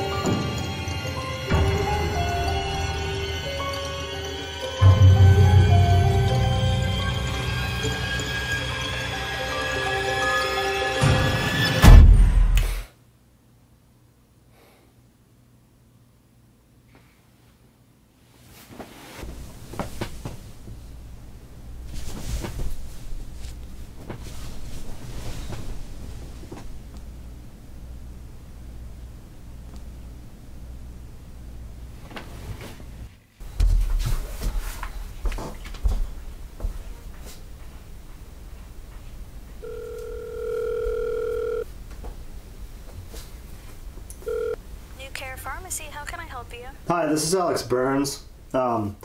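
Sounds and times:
low steady hum: 13.0s - 49.0s
bedding rustling: 18.2s - 27.0s, 31.9s - 39.0s
telephone ringback tone: 39.6s - 41.7s, 44.2s - 44.6s.

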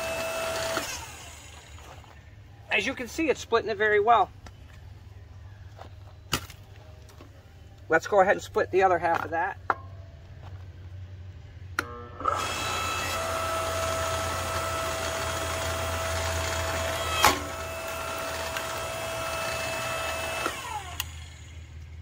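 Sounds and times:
electric log splitter motor whining: 0.0s - 2.2s, 11.8s - 22.0s
wood splitting crack: 16.1s - 19.1s.

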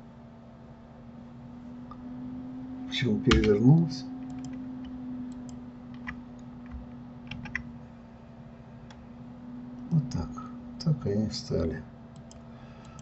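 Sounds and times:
steady low hum: 0.0s - 13.0s
computer keyboard and mouse clicks: 3.3s - 3.5s, 5.3s - 7.6s, 12.1s - 13.0s.

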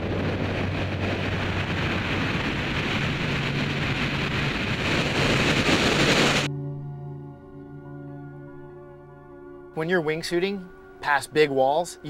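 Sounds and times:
wind roaring past: 0.0s - 6.5s.

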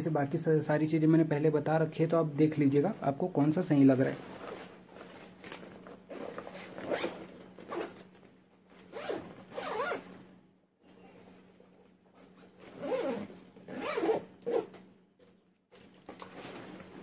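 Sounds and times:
backpack zipper being pulled: 6.1s - 8.1s, 8.8s - 10.2s, 12.6s - 14.8s.

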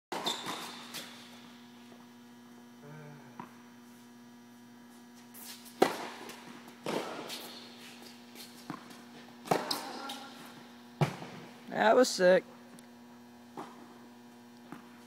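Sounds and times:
steady hum: 0.1s - 15.0s
tennis racket hitting ball: 5.7s - 7.5s, 8.6s - 10.2s.

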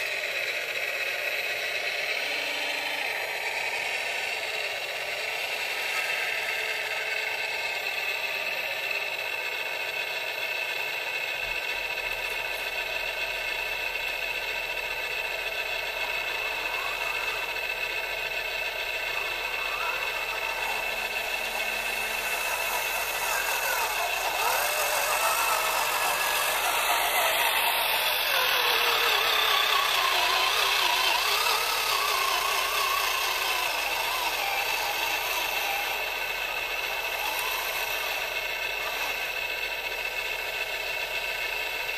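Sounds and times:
electric motor whining: 0.0s - 41.9s
steady mechanical whine: 0.0s - 41.9s.

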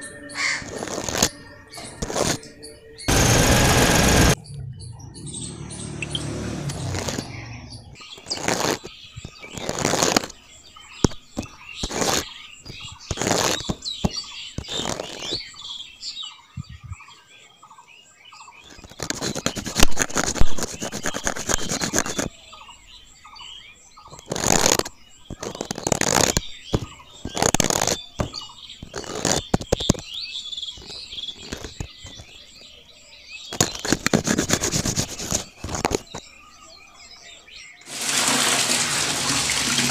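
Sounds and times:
trowel scraping cement powder: 0.4s - 2.5s, 6.6s - 10.4s, 11.0s - 15.5s, 18.6s - 22.3s, 24.1s - 30.0s, 30.8s - 32.3s, 33.5s - 36.2s, 37.9s - 39.9s
powder tipped into mixer drum: 37.9s - 39.9s.

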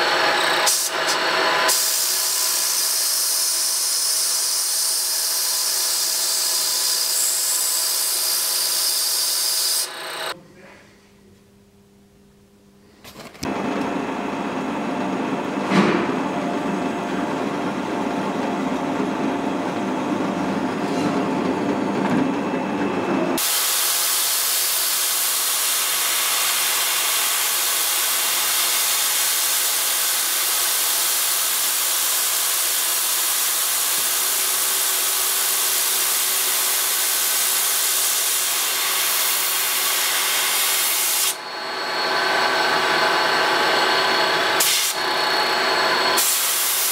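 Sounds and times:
milling machine cutting metal: 0.0s - 10.4s, 22.6s - 46.9s
low machine hum: 10.3s - 23.4s.

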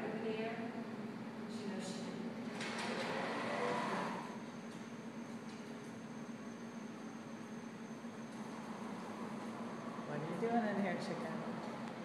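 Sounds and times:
sliding door drive whine: 2.5s - 4.5s.

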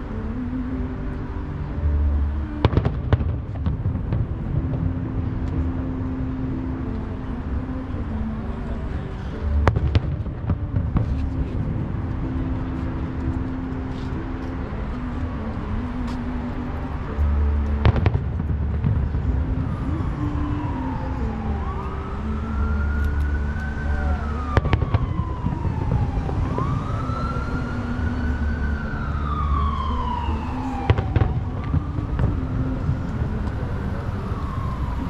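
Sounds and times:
distant fireworks banging: 2.6s - 5.5s, 9.6s - 11.8s, 17.8s - 19.5s, 24.5s - 26.8s, 30.8s - 33.5s
siren wailing: 17.1s - 35.0s.

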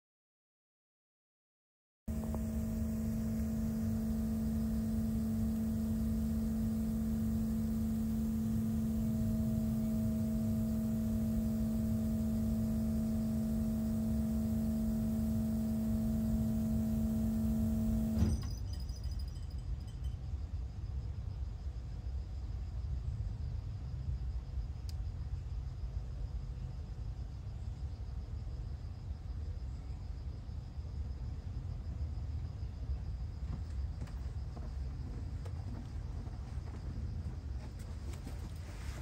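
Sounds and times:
machine humming: 2.1s - 18.6s.

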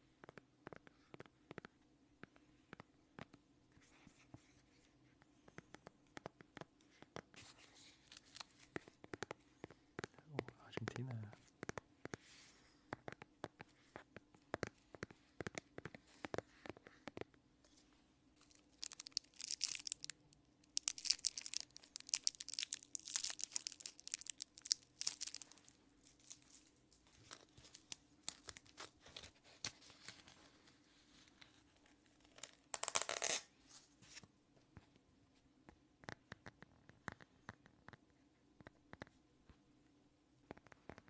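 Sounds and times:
fingers tapping plastic: 8.7s - 12.2s.

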